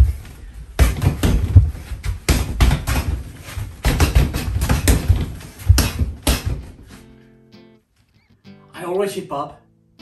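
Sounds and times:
punches thudding on dummy: 0.8s - 6.8s.

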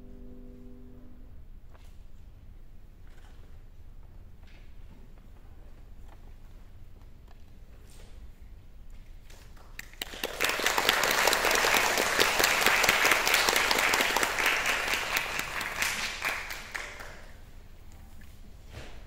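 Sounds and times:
audience applauding: 9.8s - 17.4s.

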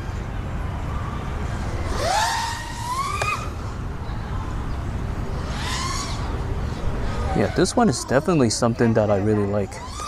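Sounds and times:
drone motors whining: 1.5s - 3.8s, 5.3s - 7.7s, 9.7s - 10.0s.

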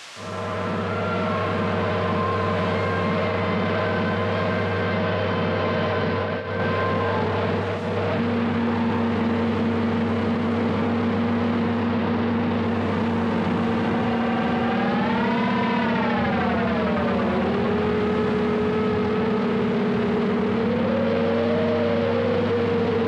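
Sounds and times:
hiss: 0.0s - 3.4s
higher wavering tone: 0.0s - 23.0s
low electronic drone: 0.0s - 23.0s.

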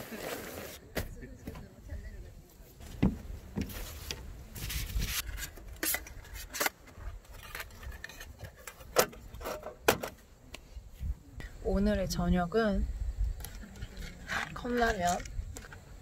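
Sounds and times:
sharp knocks on wooden decking: 2.9s - 3.7s.

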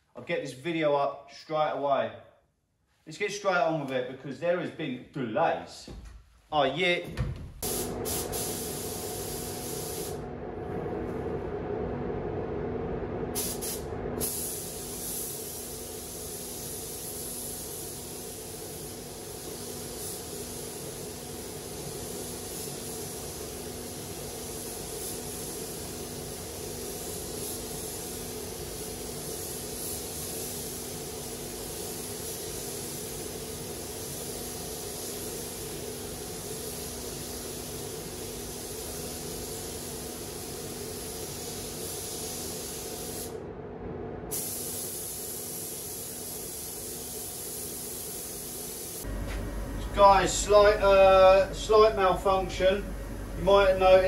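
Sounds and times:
steady hum: 7.1s - 16.9s, 43.2s - 45.0s, 49.0s - 54.0s
spray gun hissing: 7.5s - 10.2s, 13.4s - 43.4s, 44.3s - 49.2s.

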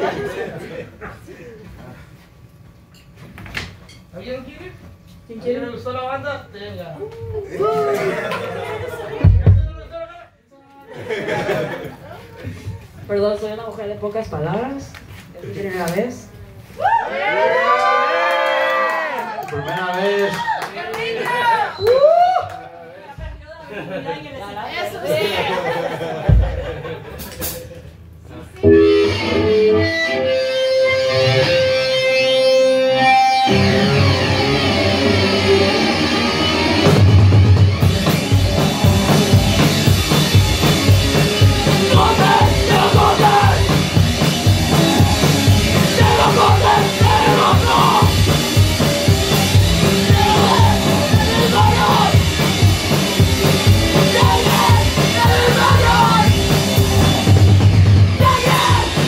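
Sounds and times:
electric guitar held notes: 28.6s - 54.0s
live rock band playing: 28.6s - 59.0s
lead vocals singing: 41.4s - 48.3s, 49.8s - 52.5s, 53.6s - 56.4s, 58.2s - 59.0s.

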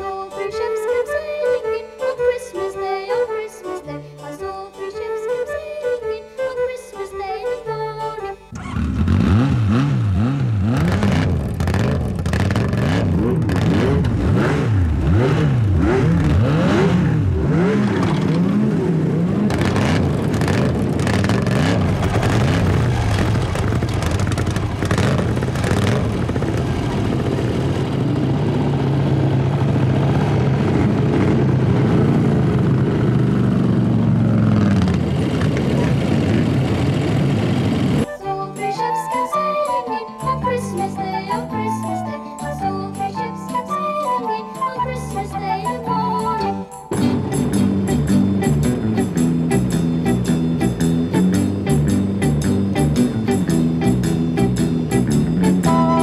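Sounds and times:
motorcycle engines revving: 8.5s - 38.1s, 46.9s - 56.0s.

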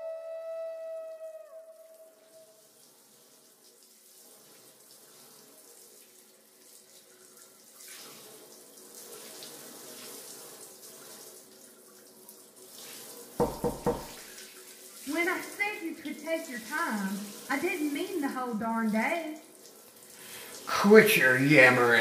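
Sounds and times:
water running: 0.0s - 22.0s
sharp knocks: 13.4s - 14.2s.

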